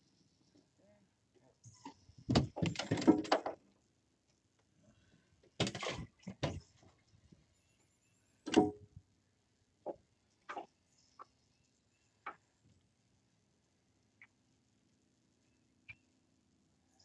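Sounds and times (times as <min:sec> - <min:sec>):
knocks and clattering on boat: 0:02.3 - 0:03.5, 0:05.6 - 0:06.7.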